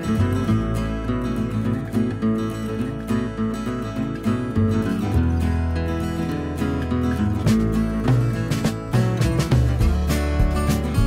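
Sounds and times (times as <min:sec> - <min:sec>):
bass line: 0:00.0 - 0:11.0
strummed acoustic guitar: 0:00.0 - 0:11.0
steady beat: 0:07.4 - 0:11.0.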